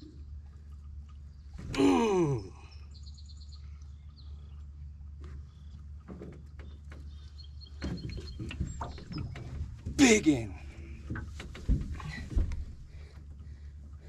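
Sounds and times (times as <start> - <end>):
low steady hum: 0.0 - 14.0
man groaning: 1.8 - 2.6.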